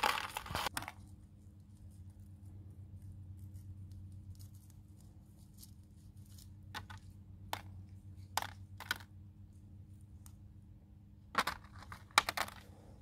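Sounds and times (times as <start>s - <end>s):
low steady hum: 0.0s - 13.0s
plastic pot clicks and crackles: 11.4s - 12.6s.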